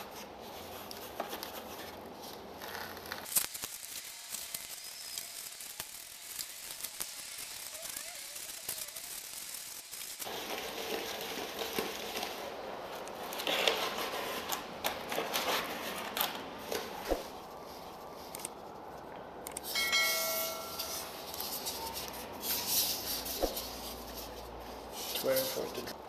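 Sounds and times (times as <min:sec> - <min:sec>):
grout rubbing and scraping: 0:10.2 - 0:18.4.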